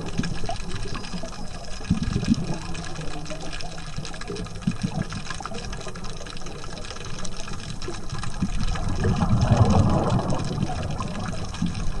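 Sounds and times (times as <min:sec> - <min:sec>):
low rumble of water: 0:00.0 - 0:12.0
diver's exhaled bubbles: 0:07.9 - 0:12.0.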